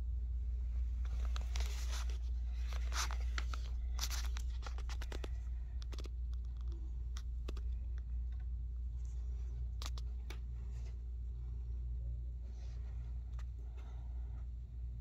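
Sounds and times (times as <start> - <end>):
steady low hum: 0.0 - 15.0
scratchy rustles and clicks: 0.9 - 11.3.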